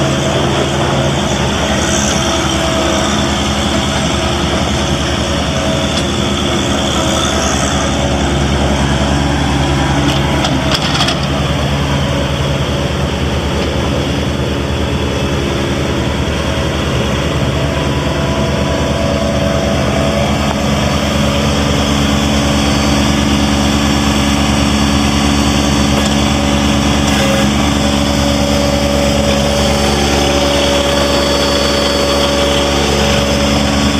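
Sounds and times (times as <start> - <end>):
tractor diesel engine running: 0.0 - 33.9.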